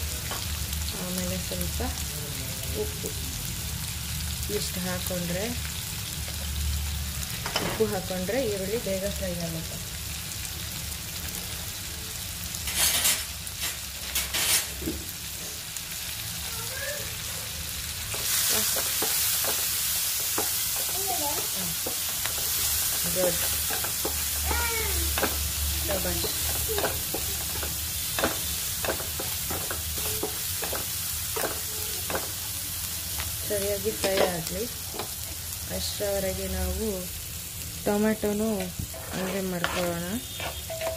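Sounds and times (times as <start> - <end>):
onions sizzling in oil: 0.0 - 40.9
spatula scraping a pan: 12.6 - 14.8, 18.1 - 32.4, 38.8 - 40.9.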